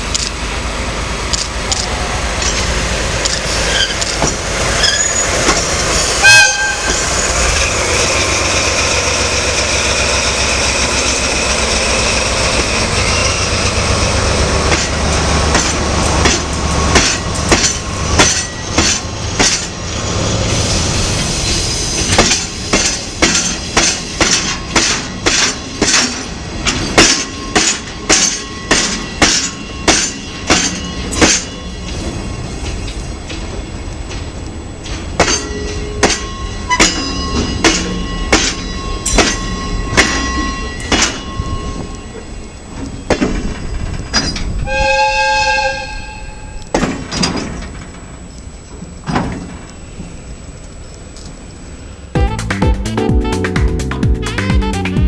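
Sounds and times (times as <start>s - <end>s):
train wheels clacking over rail joint: 0.0s - 0.4s, 1.3s - 6.2s, 14.6s - 19.9s, 21.4s - 44.7s, 46.5s - 49.8s
diesel locomotive engine running: 0.0s - 55.0s.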